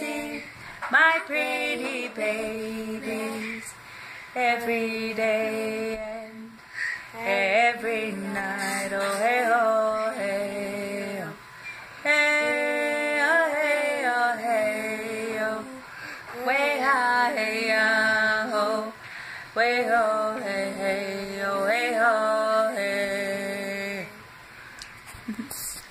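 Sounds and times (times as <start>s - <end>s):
woman singing unaccompanied: 0.0s - 3.8s, 4.4s - 24.3s
breaths: 3.8s - 4.4s, 6.6s - 7.2s, 15.8s - 16.4s, 19.0s - 19.6s.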